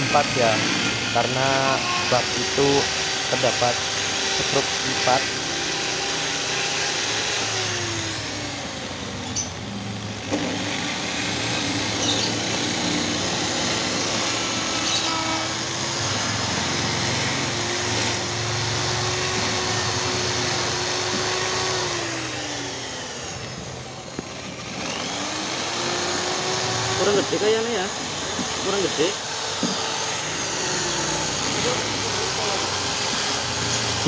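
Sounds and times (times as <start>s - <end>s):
electric drill boring into wood: 0.0s - 34.0s.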